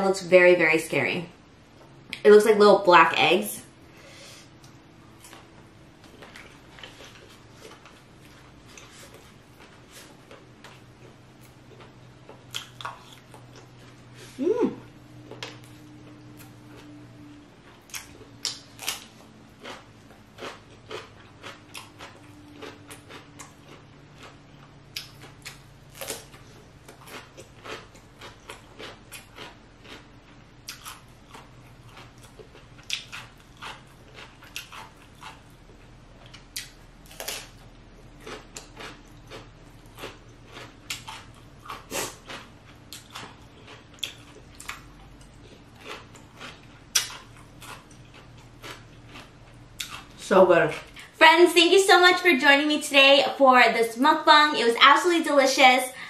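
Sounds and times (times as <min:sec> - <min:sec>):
chewing with wet mouth clicks: 0:10.3 - 0:14.0, 0:15.2 - 0:37.6, 0:38.2 - 0:50.1.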